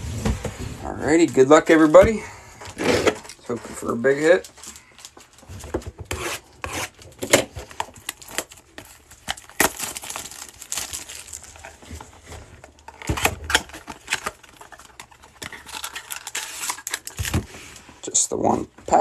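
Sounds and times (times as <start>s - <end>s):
plastic shrink wrap crinkling: 3.3s - 5.8s, 7.0s - 17.9s.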